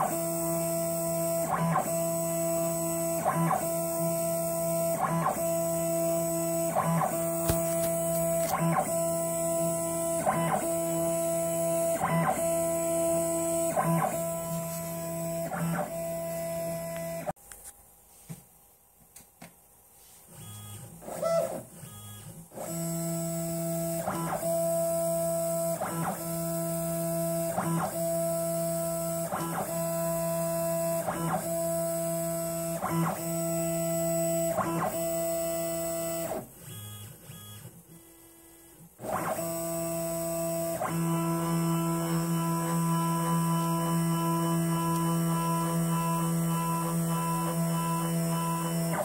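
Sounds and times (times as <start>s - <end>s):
guitar music with slow beat: 0.0s - 17.3s, 39.0s - 49.0s.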